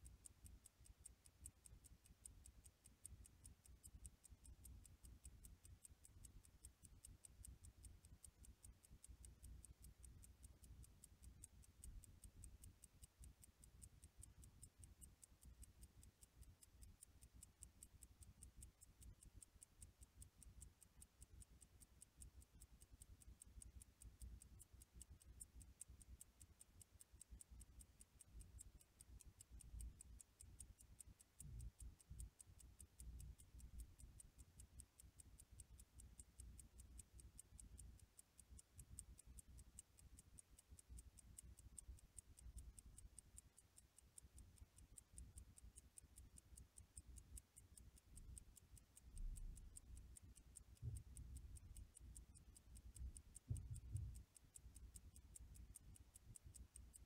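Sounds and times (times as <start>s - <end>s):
watch ticking faintly: 0.0s - 57.0s.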